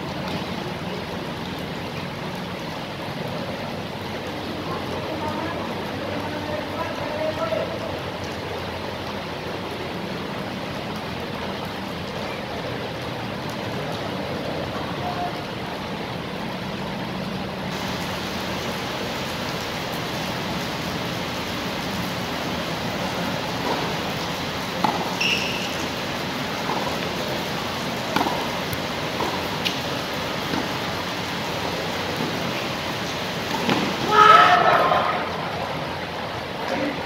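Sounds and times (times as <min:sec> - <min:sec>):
tennis ball strikes: 0:23.6 - 0:23.9, 0:24.8 - 0:25.7, 0:26.6 - 0:27.0, 0:28.1 - 0:29.8, 0:30.5 - 0:30.8, 0:33.5 - 0:34.0.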